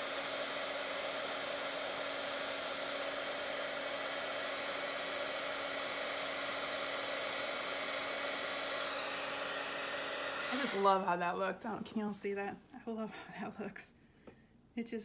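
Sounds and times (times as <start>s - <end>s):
heat tool fan whining: 0.0s - 11.5s.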